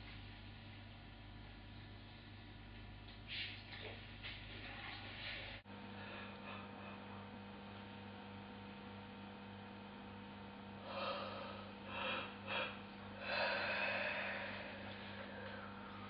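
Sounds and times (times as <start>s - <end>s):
low mains hum: 0.0s - 16.0s
breathy puffs: 10.8s - 16.0s.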